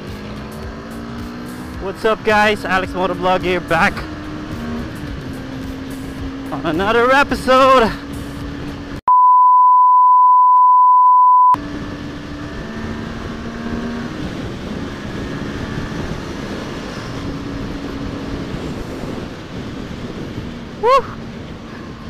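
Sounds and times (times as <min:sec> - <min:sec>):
motorcycle engine hum: 0:00.0 - 0:09.0, 0:11.6 - 0:22.0
wind and road noise: 0:00.0 - 0:09.0, 0:11.6 - 0:22.0
loud single-pitch bleep: 0:09.1 - 0:11.6.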